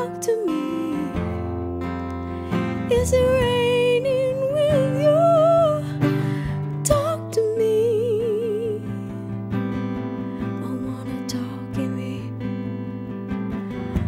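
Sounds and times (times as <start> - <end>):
woman singing with vibrato: 0.0 - 1.6, 2.5 - 9.4, 10.4 - 12.6
strummed acoustic guitar: 0.0 - 14.0.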